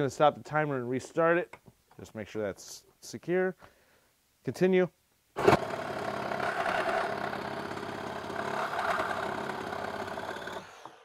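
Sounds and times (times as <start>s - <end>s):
reciprocating saw cutting wood: 5.4s - 11.0s.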